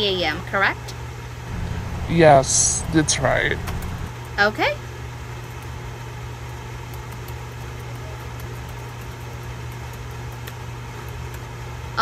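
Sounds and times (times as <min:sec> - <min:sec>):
low background hum: 0:01.5 - 0:04.1.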